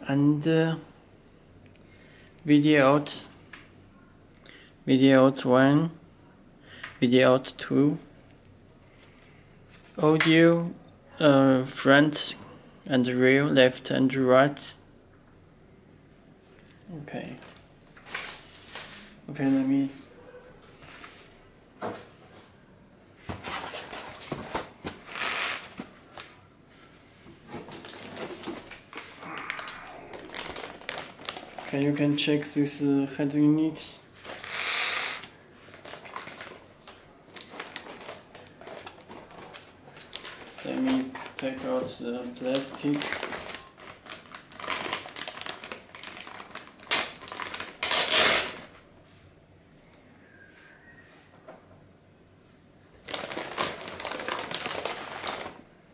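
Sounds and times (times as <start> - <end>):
plastic bag rustling: 23.4 - 26.4, 27.4 - 32.6, 34.2 - 48.8, 53.0 - 55.6.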